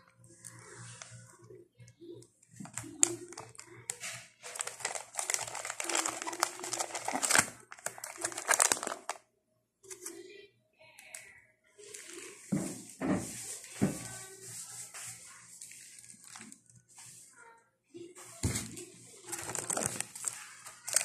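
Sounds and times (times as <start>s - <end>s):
plastic packs crinkling: 2.5s - 9.2s, 15.4s - 17.1s, 18.4s - 21.0s.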